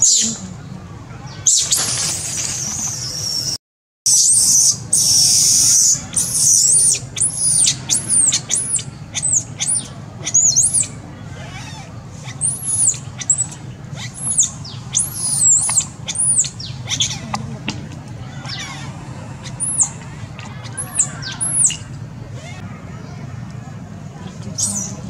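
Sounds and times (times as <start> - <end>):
baby monkey screaming: 4.1 - 17.4, 18.2 - 22.6.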